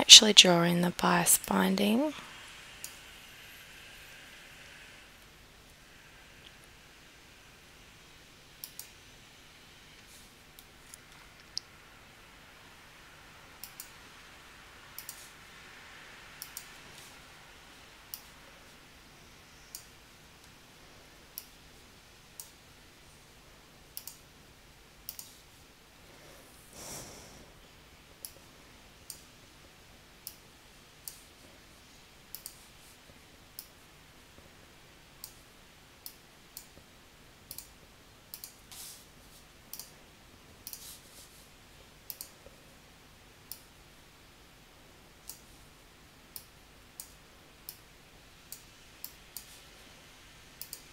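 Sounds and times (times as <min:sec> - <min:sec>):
soft rush of noise: 0:00.0 - 0:50.9
computer mouse clicking: 0:08.6 - 0:09.0, 0:13.6 - 0:14.0, 0:15.0 - 0:15.3, 0:16.4 - 0:17.1, 0:24.0 - 0:24.2, 0:25.0 - 0:25.4, 0:32.3 - 0:32.6, 0:35.2 - 0:35.4, 0:37.5 - 0:38.8, 0:39.7 - 0:40.0, 0:40.6 - 0:40.9, 0:42.1 - 0:42.4, 0:43.5 - 0:43.7, 0:50.6 - 0:50.9.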